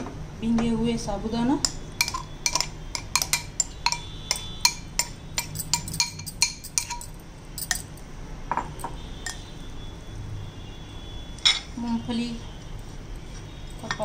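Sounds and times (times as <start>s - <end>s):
spoon clinking on glass bowl: 1.6s - 8.0s, 8.8s - 9.4s.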